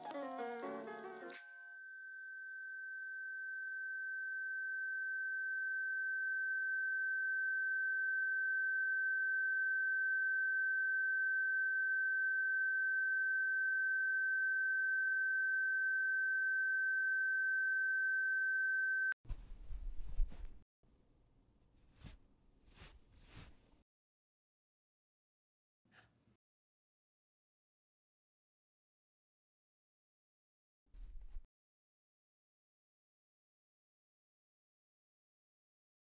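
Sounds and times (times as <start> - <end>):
faint lower tone: 1.4 - 19.2.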